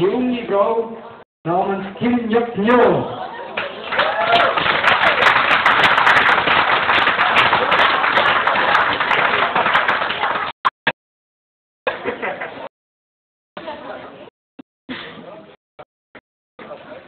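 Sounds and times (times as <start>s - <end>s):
audience applauding: 3.6s - 10.6s.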